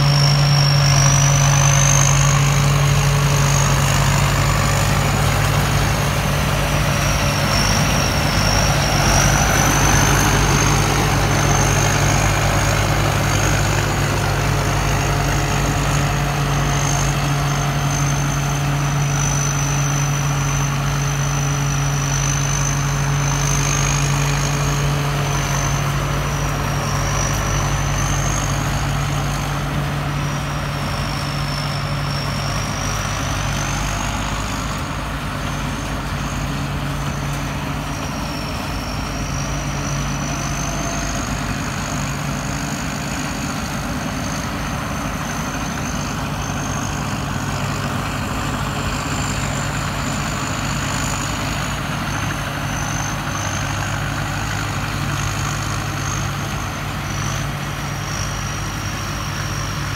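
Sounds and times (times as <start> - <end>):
combine harvester diesel engine: 0.0 - 59.9
high machine whine: 0.0 - 59.9.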